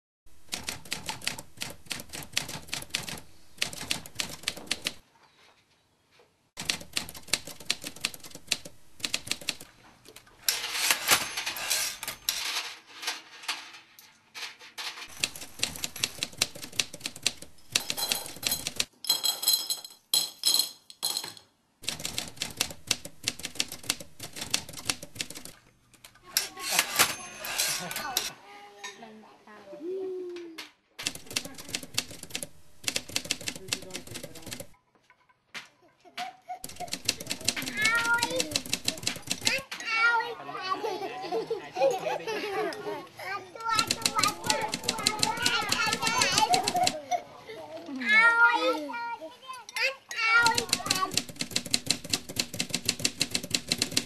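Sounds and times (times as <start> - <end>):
typewriter keys striking: 0.5 - 5.0, 6.6 - 9.7, 15.1 - 18.9, 21.8 - 25.6, 31.0 - 34.8, 36.6 - 39.6, 43.7 - 47.0, 50.4 - 54.0.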